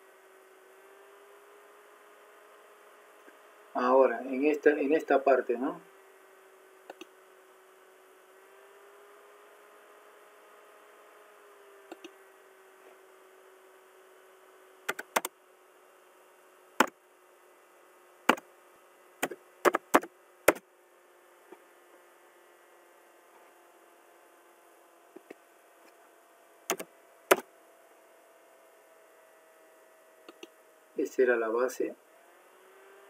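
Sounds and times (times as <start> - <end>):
faint steady hum: 0.0 - 33.0
mouse and keyboard clicks: 6.9 - 7.1, 11.9 - 12.1, 14.9 - 15.3, 26.7 - 27.4, 30.3 - 30.5.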